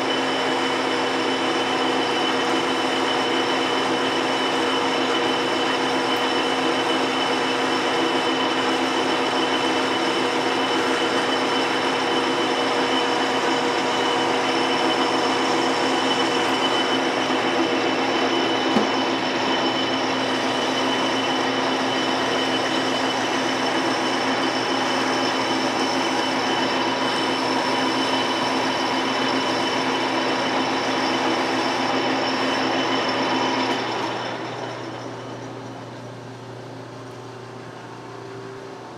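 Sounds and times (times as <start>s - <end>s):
machine whine: 0.0s - 38.9s
metal lathe running: 0.0s - 38.9s.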